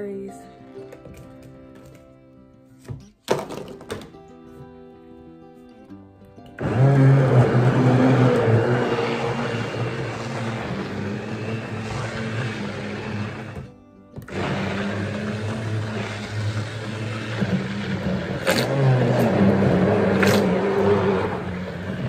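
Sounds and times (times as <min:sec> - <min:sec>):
immersion blender motor humming: 0:06.6 - 0:22.0.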